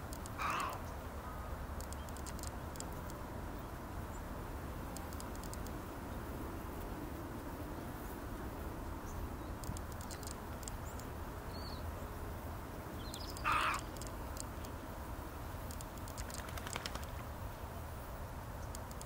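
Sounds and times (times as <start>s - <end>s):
faint ticks: 0.0s - 1.0s, 1.7s - 3.3s, 4.9s - 5.8s, 9.6s - 11.2s, 13.0s - 14.8s, 15.6s - 17.4s, 18.5s - 19.0s
rasping bird call: 0.3s - 0.9s, 13.2s - 14.1s
small chirp: 1.8s - 3.2s, 9.1s - 11.8s, 13.0s - 14.8s.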